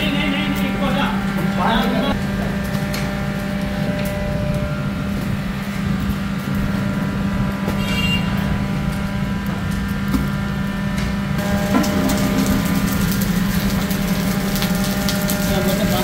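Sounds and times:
electric fan humming: 0:00.0 - 0:16.0
clay pots knocking on coals: 0:11.0 - 0:16.0.

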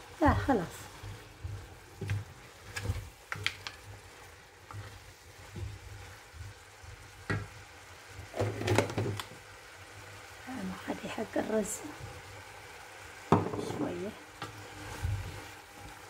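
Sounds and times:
food sizzling: 0:00.0 - 0:16.0
spatula scraping pot: 0:00.3 - 0:06.6.

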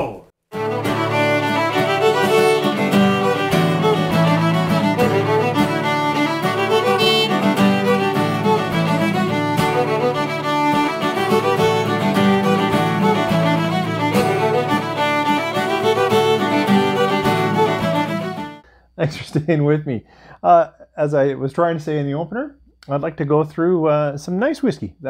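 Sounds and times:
instrumental intro music: 0:00.5 - 0:18.6.

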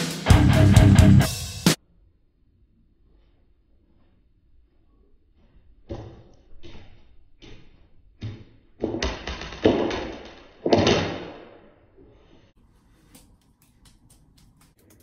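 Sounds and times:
juggling clubs knocking and clattering: 0:08.2 - 0:11.6.

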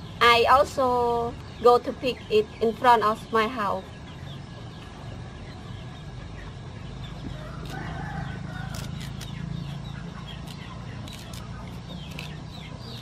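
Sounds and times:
leaves snapping and rustling: 0:10.4 - 0:12.4.

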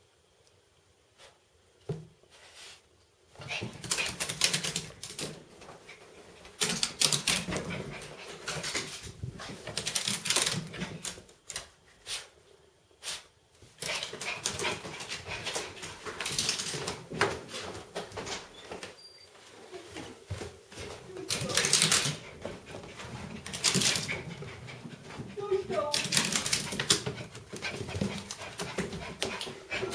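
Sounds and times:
dog claws clattering on floor: 0:13.8 - 0:17.0, 0:21.3 - 0:22.8, 0:23.4 - 0:24.6, 0:25.9 - 0:29.6.

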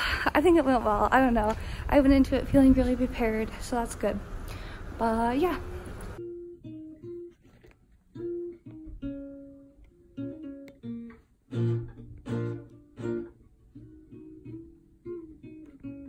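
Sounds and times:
classical guitar plucked notes: 0:05.7 - 0:16.0
guitar strummed chords: 0:06.2 - 0:16.0.

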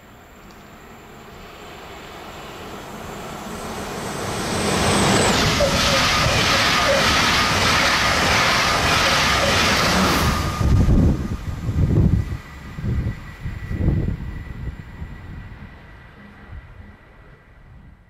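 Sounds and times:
faint high whine: 0:00.0 - 0:18.0
train passing at high speed: 0:00.0 - 0:18.0
wheels clattering on rails: 0:04.8 - 0:12.2.

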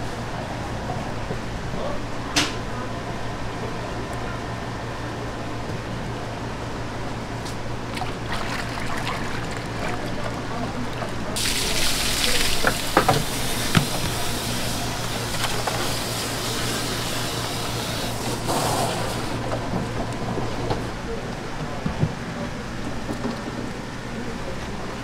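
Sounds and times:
tap water running: 0:07.9 - 0:10.4, 0:11.0 - 0:19.4.

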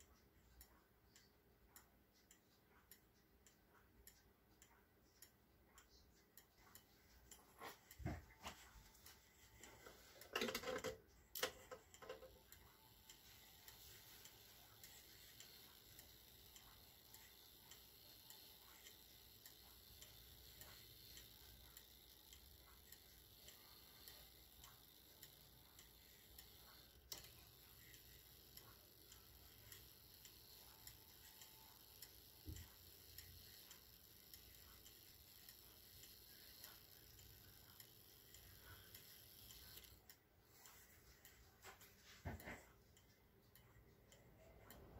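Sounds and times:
wall clock ticking: 0:00.0 - 0:44.9.

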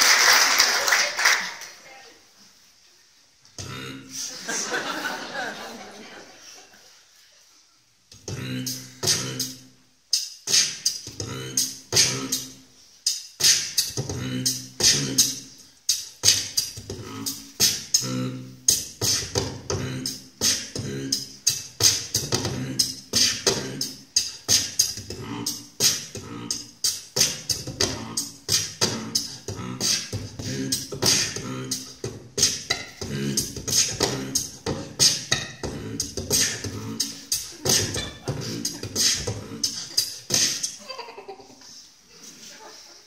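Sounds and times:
person beatboxing: 0:03.6 - 0:04.3, 0:08.1 - 0:40.8.

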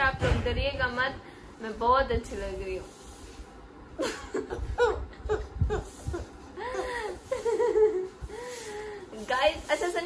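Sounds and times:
young woman laughing: 0:04.0 - 0:08.7.

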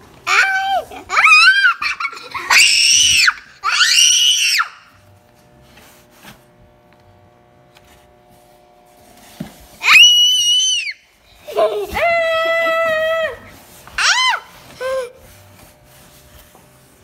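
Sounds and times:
child squealing playfully: 0:00.3 - 0:05.0, 0:09.8 - 0:15.2.

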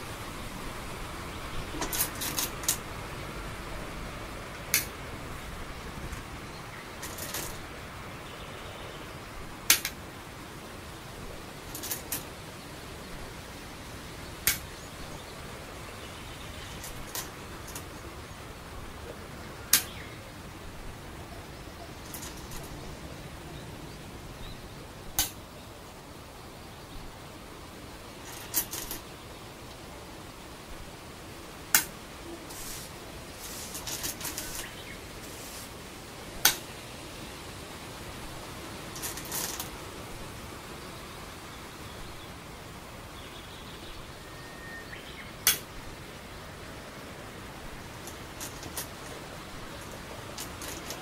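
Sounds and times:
rustling: 0:00.0 - 0:03.0, 0:03.6 - 0:07.8, 0:09.5 - 0:13.6, 0:14.4 - 0:23.2, 0:28.1 - 0:29.9, 0:31.7 - 0:36.8, 0:37.5 - 0:40.8, 0:45.4 - 0:51.0
steady hiss: 0:00.0 - 0:51.0
stones clacking on wooden board: 0:11.7 - 0:12.3, 0:22.0 - 0:22.8, 0:48.0 - 0:49.2, 0:49.8 - 0:51.0.

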